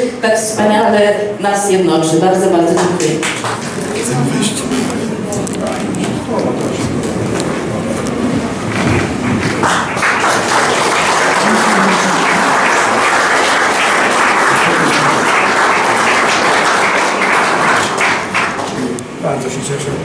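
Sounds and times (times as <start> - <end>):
audience applauding: 2.8 - 5.0, 8.7 - 19.2.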